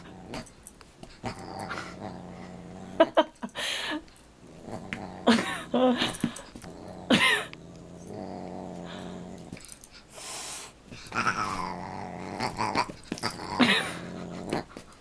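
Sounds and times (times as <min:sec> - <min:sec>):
dog growling: 0:00.0 - 0:00.5, 0:01.2 - 0:03.2, 0:04.4 - 0:09.7, 0:11.0 - 0:14.9.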